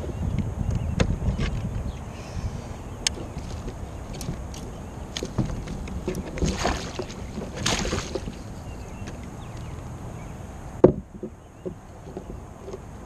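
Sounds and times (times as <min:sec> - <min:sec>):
small knocks and rattles: 0:03.1 - 0:09.9, 0:10.8 - 0:13.0.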